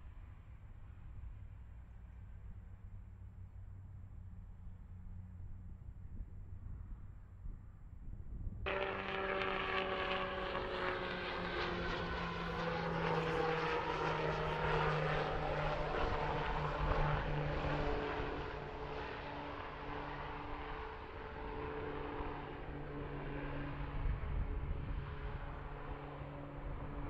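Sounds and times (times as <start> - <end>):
aircraft engines passing: 0.0 - 27.0.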